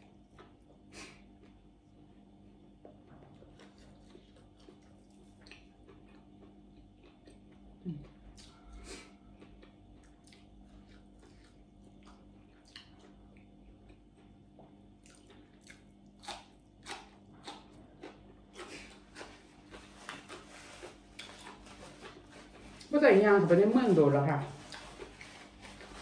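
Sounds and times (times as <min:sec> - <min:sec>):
person chewing vegetables: 0:00.0 - 0:02.0, 0:02.7 - 0:22.9, 0:24.5 - 0:26.0
low steady hum: 0:00.0 - 0:26.0.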